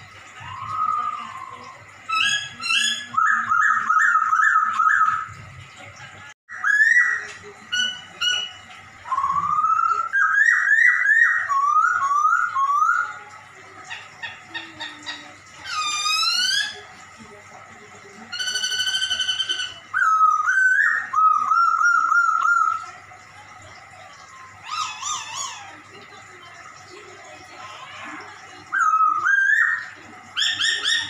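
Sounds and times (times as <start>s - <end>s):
bird singing whistled phrases: 0.4s - 5.3s, 6.5s - 13.2s, 18.4s - 22.8s, 28.7s - 31.0s.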